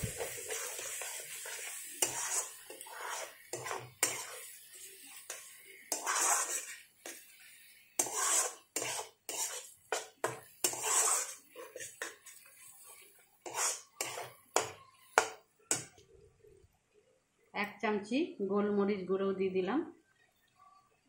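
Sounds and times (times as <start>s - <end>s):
metal spatula scraping pan: 0.0s - 15.9s.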